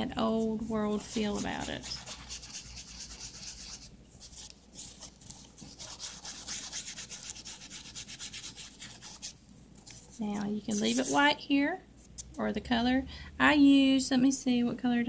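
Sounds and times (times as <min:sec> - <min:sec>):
ink pad scrubbing paper edges: 0:00.3 - 0:11.3.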